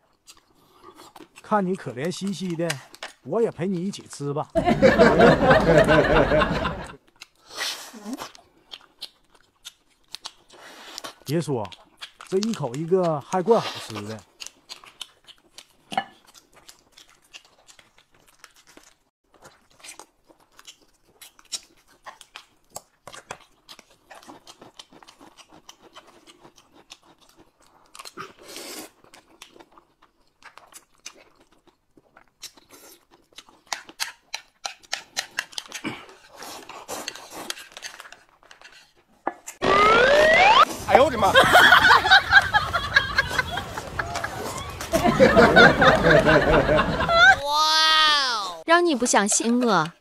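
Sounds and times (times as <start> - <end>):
chewing and crunching: 0.0 - 4.6, 7.0 - 39.6.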